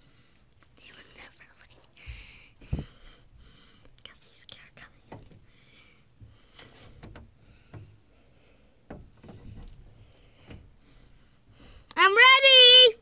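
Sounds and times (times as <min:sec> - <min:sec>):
soft hiss: 0:00.0 - 0:12.0
soft knocks: 0:05.0 - 0:05.5, 0:06.2 - 0:08.0, 0:08.8 - 0:10.8
light rustling: 0:06.2 - 0:08.0, 0:08.8 - 0:11.3.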